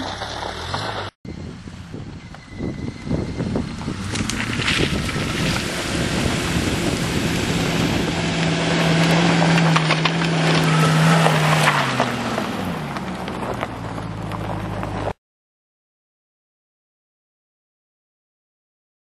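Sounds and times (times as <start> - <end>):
stones crackling under tyres: 0.0 - 1.2, 2.2 - 15.2
car engine running under load: 0.0 - 15.2.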